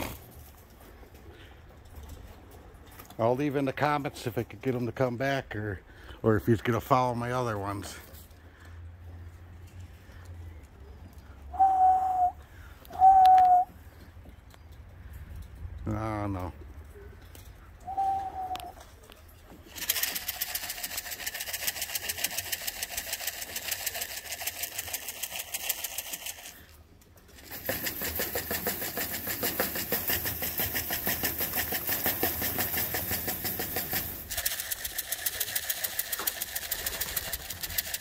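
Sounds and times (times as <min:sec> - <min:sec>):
small engine ticking clatter: 0:19.5 - 0:38.0.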